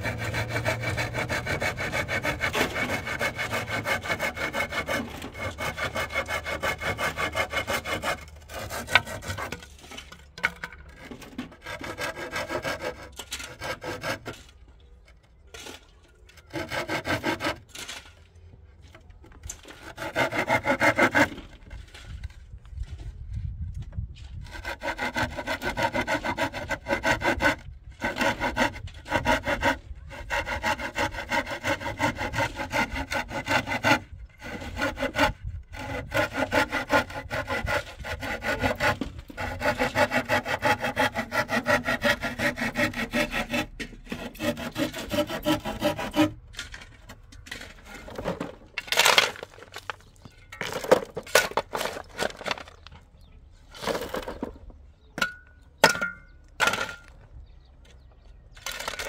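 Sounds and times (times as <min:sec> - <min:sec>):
handsaw cutting wood: 0:00.0 - 0:10.1, 0:11.0 - 0:14.6, 0:16.4 - 0:18.0, 0:19.6 - 0:22.1, 0:24.4 - 0:46.8
scraping knocks: 0:00.0 - 0:23.2, 0:23.8 - 0:59.0.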